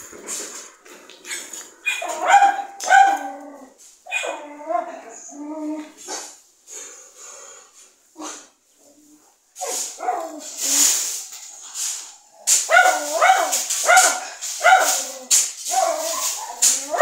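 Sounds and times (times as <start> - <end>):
dog barking: 1.3 - 3.4, 4.1 - 4.4, 9.6 - 10.4, 12.6 - 15.1
dog yelping: 1.3 - 4.9, 12.7 - 17.0.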